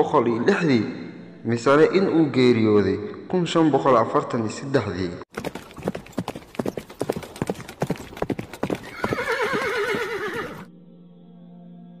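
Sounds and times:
horse hooves clattering: 0:05.3 - 0:10.6
horse whinnying: 0:06.6 - 0:10.7.

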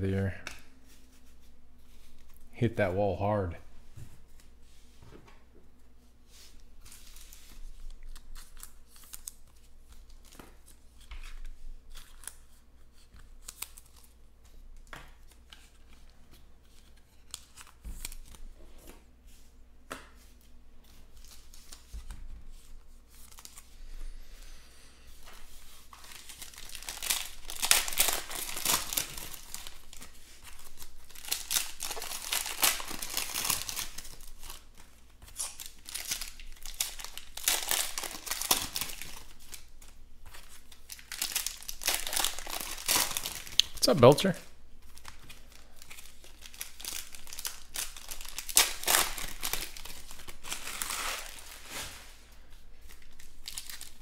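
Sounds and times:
foil wrapper tearing and crinkling: 0:06.9 - 0:10.8, 0:13.3 - 0:14.2, 0:25.8 - 0:43.8, 0:44.8 - 0:52.0, 0:52.8 - 0:54.0.

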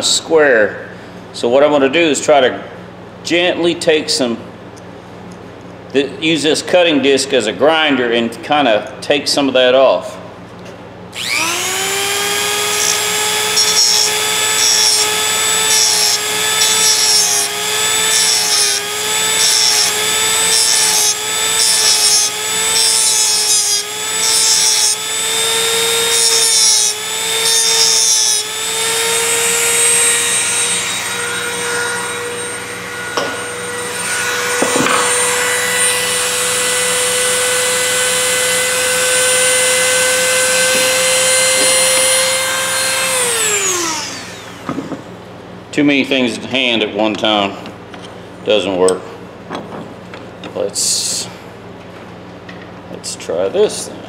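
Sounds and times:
rotary tool whining: 0:11.1 - 0:44.9
cut-off disc grinding steel: 0:11.2 - 0:44.7.

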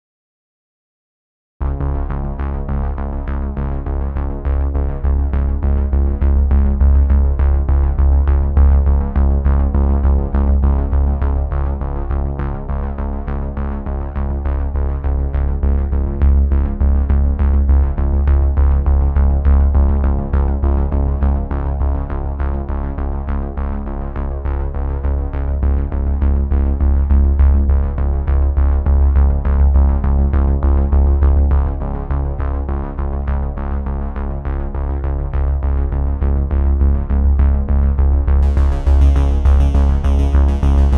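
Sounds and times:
electronic music with heavy bass: 0:35.7 - 0:40.9.

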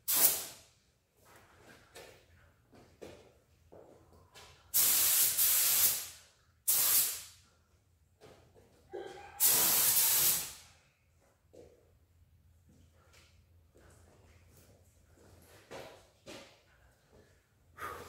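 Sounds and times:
spray gun hissing: 0:04.8 - 0:06.1, 0:06.7 - 0:07.2, 0:09.4 - 0:10.6.

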